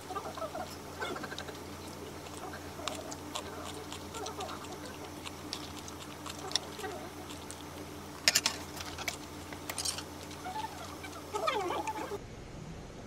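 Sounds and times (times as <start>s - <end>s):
steady low hum: 0.0s - 13.0s
metal utensils clinking on steel bowls: 8.2s - 9.1s, 9.7s - 10.1s.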